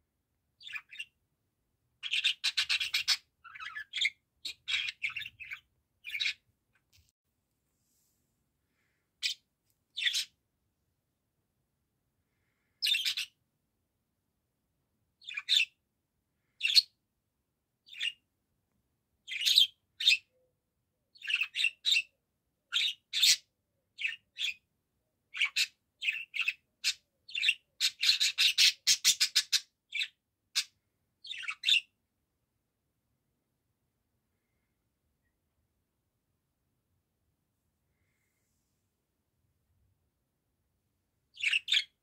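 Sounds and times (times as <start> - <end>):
budgerigar chirping: 0.6 - 1.2, 2.0 - 6.4, 9.2 - 9.4, 10.0 - 10.4, 12.8 - 13.4, 15.2 - 15.8, 19.3 - 20.3, 21.2 - 22.1, 22.7 - 24.6, 25.3 - 31.9, 41.3 - 42.0.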